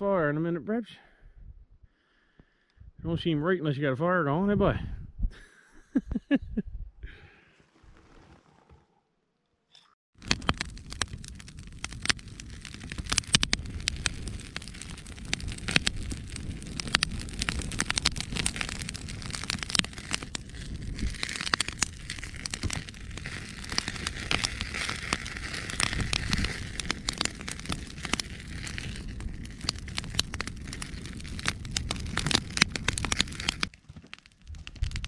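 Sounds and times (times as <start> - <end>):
wood fire crackling and popping: 10.1 - 35.0
low fire rumble: 10.2 - 35.0.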